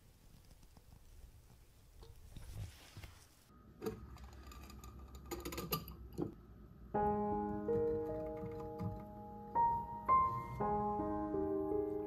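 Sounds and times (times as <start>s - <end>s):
gentle piano music: 6.5s - 12.0s.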